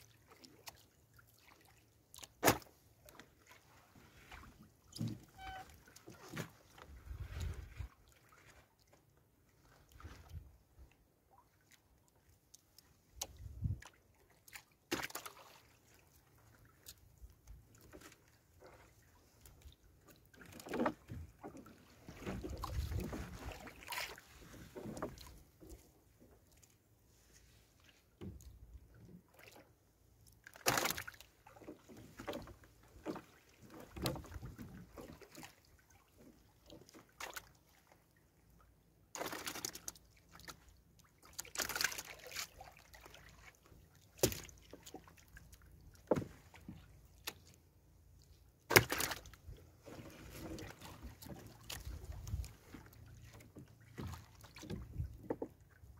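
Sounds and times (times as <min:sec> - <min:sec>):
water splashing and dripping: 0:20.4 - 0:25.8, 0:30.5 - 0:37.9, 0:39.2 - 0:43.6, 0:48.7 - 0:49.3, 0:50.3 - 0:55.5.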